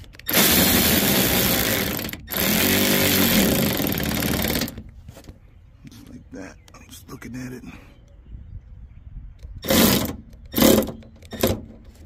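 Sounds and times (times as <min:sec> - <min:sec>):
cordless power tool spinning: 0:00.0 - 0:04.8, 0:09.6 - 0:11.5.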